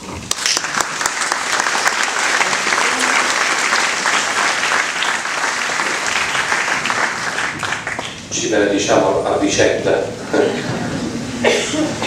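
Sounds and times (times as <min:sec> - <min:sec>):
crowd applause: 0:00.3 - 0:08.4
speech: 0:08.3 - 0:10.2.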